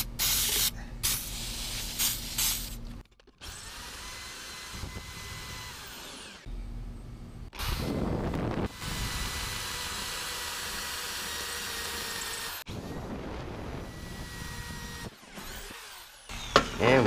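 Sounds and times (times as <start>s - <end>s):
electric drill drilling steel: 3.4s - 6.5s, 7.6s - 12.9s, 13.8s - 17.0s.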